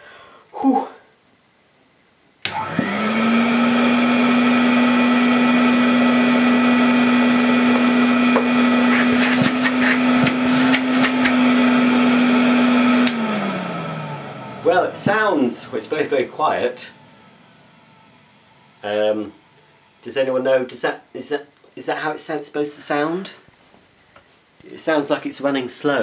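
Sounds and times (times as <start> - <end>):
vacuum cleaner switch click: 2.4 - 3.0, 13.0 - 13.3
vacuum cleaner motor humming: 2.4 - 20.0.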